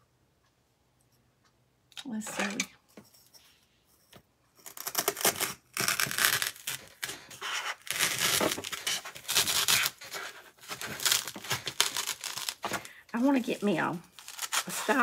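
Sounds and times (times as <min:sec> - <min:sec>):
knife sawing through styrofoam: 0:04.6 - 0:15.0.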